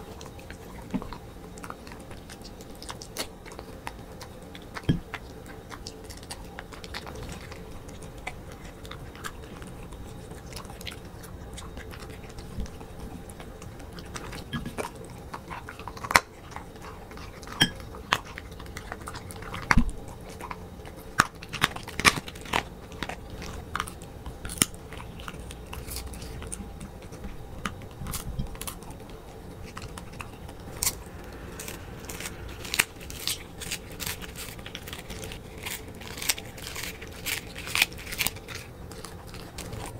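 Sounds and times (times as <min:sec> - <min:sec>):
dog chewing and crunching food: 0:00.0 - 0:39.9
teeth clicking on ceramic plate: 0:13.4 - 0:19.8.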